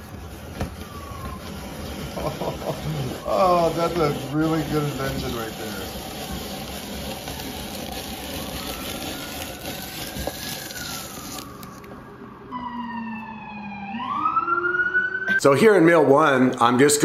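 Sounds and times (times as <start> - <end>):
apple peeler blade scraping: 0.0 - 11.8
siren wailing: 0.6 - 15.4.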